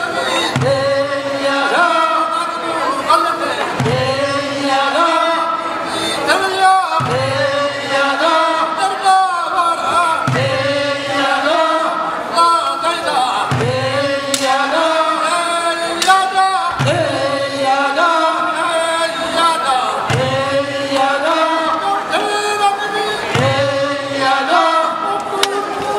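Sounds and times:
men chanting a work song: 0.0 - 25.9.

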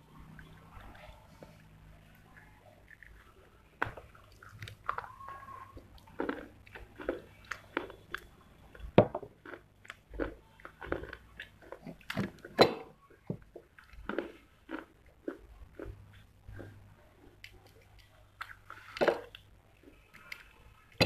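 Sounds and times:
person biting and chewing clay: 3.8 - 12.8, 13.6 - 16.8.

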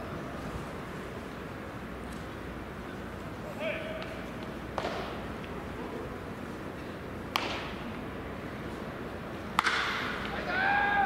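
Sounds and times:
ballpark ambient hiss: 0.0 - 11.0
baseball hitting catcher's mitt: 4.7 - 5.2, 7.3 - 7.8, 9.5 - 10.2.

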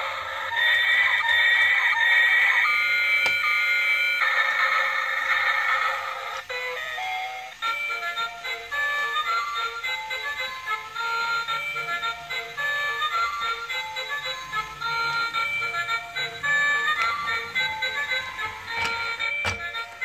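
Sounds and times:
toy electronic melody: 0.0 - 20.0.

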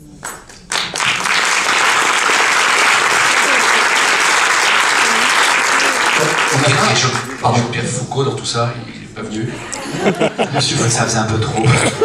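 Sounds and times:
audience applauding: 0.2 - 7.7.

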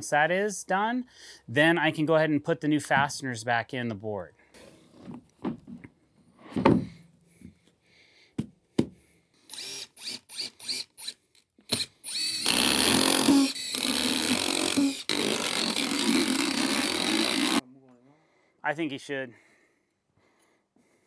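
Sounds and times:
impact driver driving screws: 9.5 - 17.6.

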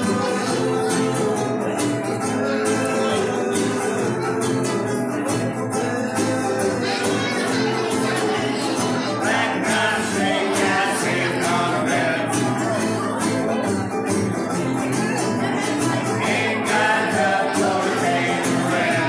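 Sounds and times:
acoustic guitar: 0.0 - 19.0
ukuleles strumming: 0.0 - 19.0.

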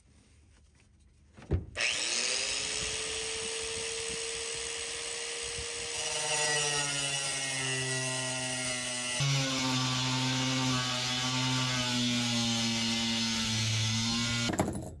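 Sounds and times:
angle grinder whining: 1.8 - 14.5
grinder cutting sheet metal: 1.8 - 14.6.

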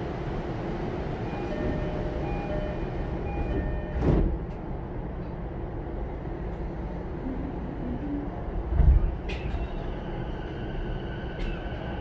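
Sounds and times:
train car low hum: 0.0 - 12.0
train doors shutting thud: 3.4 - 4.7.

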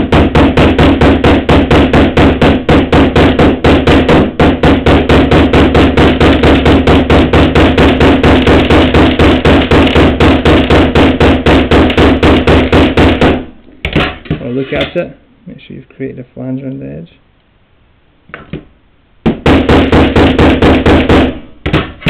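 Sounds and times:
hammer tapping on metal tube: 0.0 - 14.4.

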